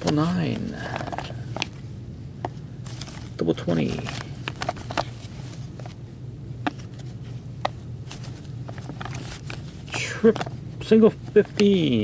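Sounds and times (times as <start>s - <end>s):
low hum: 0.0s - 12.0s
cards knocking together: 11.3s - 12.0s.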